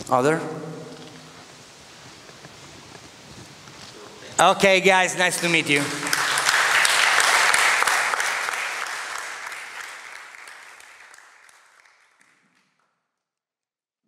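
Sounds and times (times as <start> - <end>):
audience applauding: 4.4 - 12.8.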